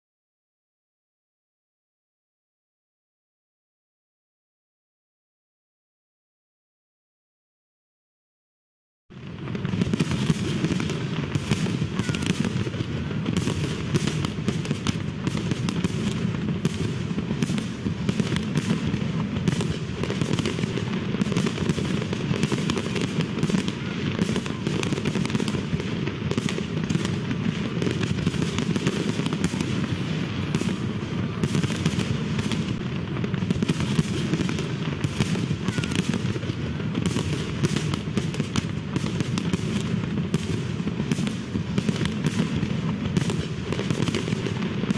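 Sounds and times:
fireworks crackling and popping: 9.1 - 44.9.

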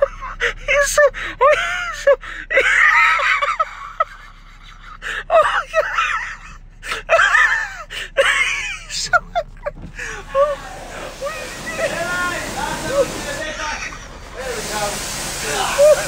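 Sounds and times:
person laughing under breath: 0.0 - 10.6.

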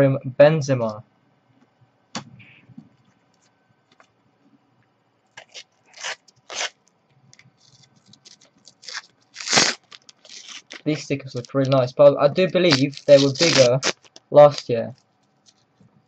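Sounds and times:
foil packet tearing and crinkling: 5.4 - 6.8, 7.6 - 11.8, 12.5 - 15.6.

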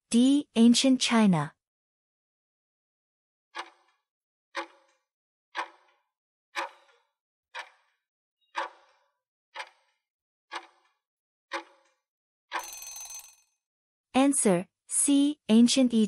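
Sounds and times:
clock-like timer ticks: 3.6 - 4.0, 4.6 - 5.0, 5.6 - 6.0, 6.6 - 13.3.

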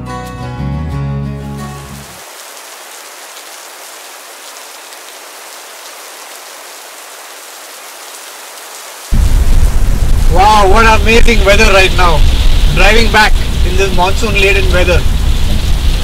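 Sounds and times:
rain falling: 1.8 - 16.0
loud low rumble: 9.1 - 16.0.

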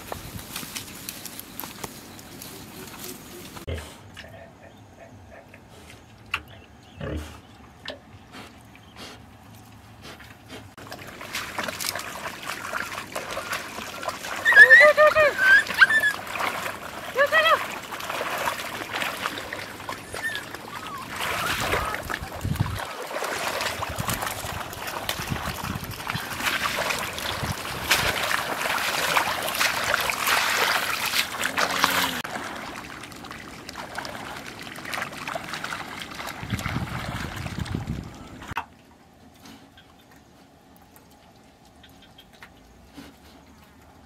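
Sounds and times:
feet splashing through shallow water: 9.9 - 38.6.

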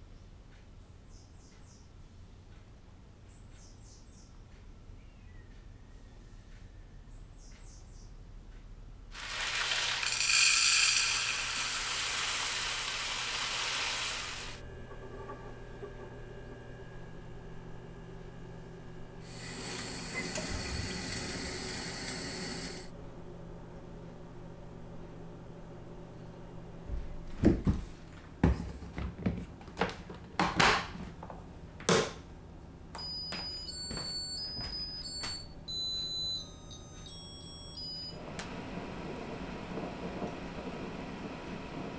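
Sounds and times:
rice pouring into metal pot: 9.2 - 14.6, 19.3 - 22.9
electronic beeping tune: 33.0 - 38.2.

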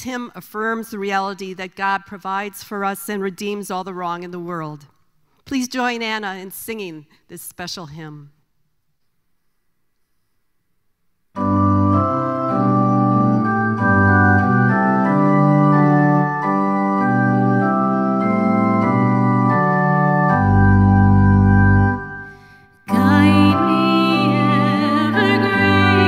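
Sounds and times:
organ chords on keyboard: 11.3 - 26.0.

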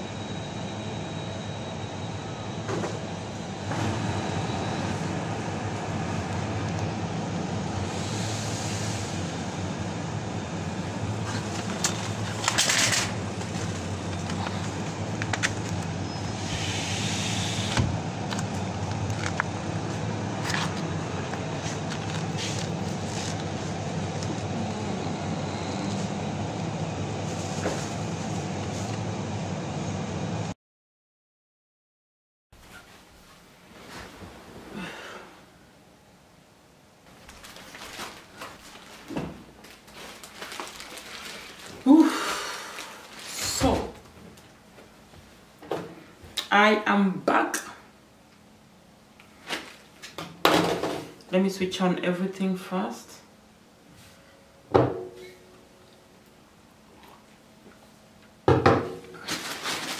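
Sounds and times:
refrigerated cases humming: 0.0 - 30.5, 34.4 - 46.4.

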